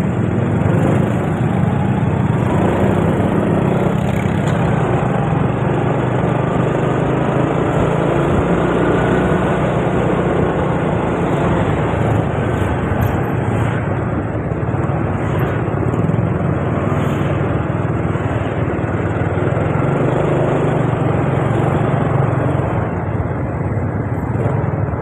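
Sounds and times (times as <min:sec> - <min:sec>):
motor scooter engine riding: 0:00.0 - 0:25.0
surrounding traffic: 0:00.0 - 0:25.0.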